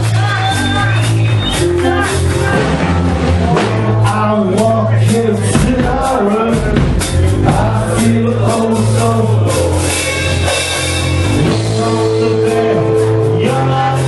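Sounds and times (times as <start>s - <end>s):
bass line: 0.0s - 14.0s
guitar: 0.0s - 14.0s
person singing: 0.0s - 14.0s
punk rock band playing: 0.0s - 14.0s
drum hits: 1.2s - 8.2s.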